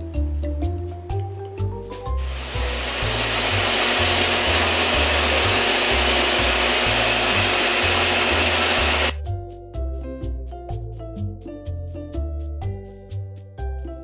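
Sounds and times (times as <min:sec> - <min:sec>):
table saw running: 0:02.2 - 0:09.2.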